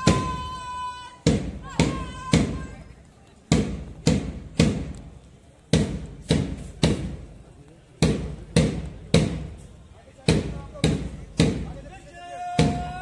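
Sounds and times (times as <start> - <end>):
marching drum beating: 0.0 - 0.5, 1.2 - 2.8, 3.5 - 5.0, 5.7 - 7.3, 8.0 - 11.9, 12.5 - 13.0.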